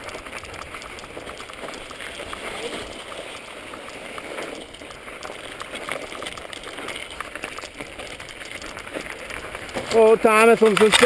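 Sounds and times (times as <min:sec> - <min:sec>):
bike rattling over trail: 0:00.0 - 0:11.0
tyres hissing on snow: 0:01.7 - 0:07.4.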